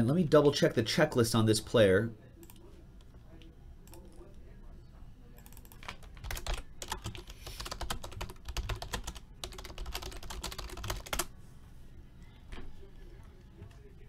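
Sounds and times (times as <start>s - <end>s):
fast typing on keyboard: 5.4s - 11.3s.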